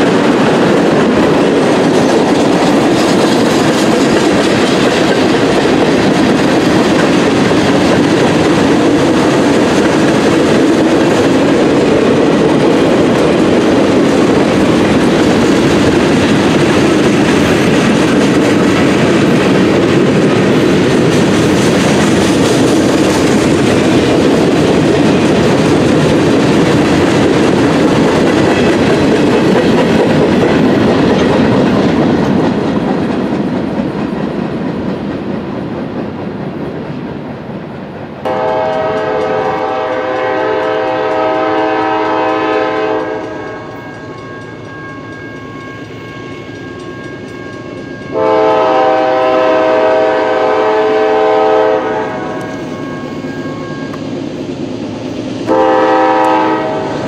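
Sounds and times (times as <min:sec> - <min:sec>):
freight cars rolling on rails: 0:00.0 - 0:57.0
locomotive air horn: 0:38.3 - 0:43.9, 0:48.1 - 0:54.0, 0:55.5 - 0:57.0.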